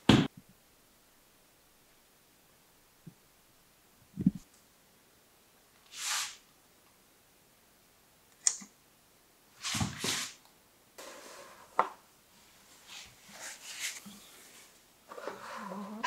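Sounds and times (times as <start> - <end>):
short hiss: 5.9 - 6.4
soft rubbing: 11.0 - 16.0.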